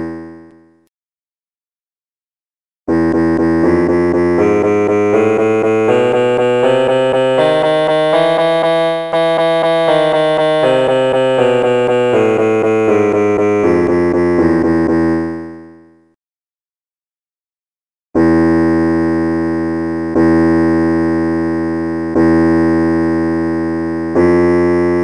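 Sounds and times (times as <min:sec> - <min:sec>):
keyboard playing a scale: 0:02.9 - 0:16.0, 0:18.2 - 0:25.0.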